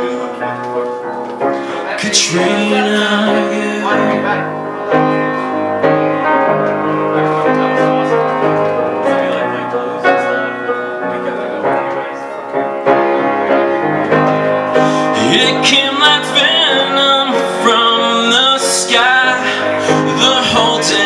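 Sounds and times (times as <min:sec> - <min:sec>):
piano chords: 0:00.0 - 0:21.0.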